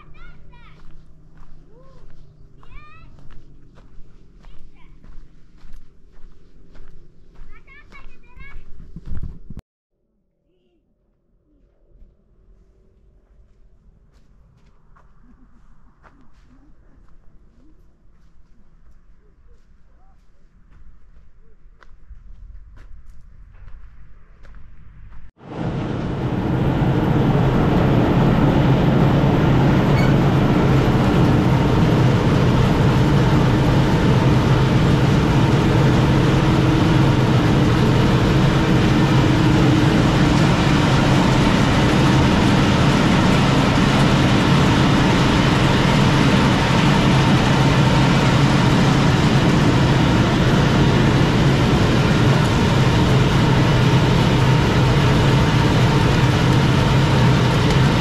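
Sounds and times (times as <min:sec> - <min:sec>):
motor-driven machine humming: 0:25.5 - 0:58.0.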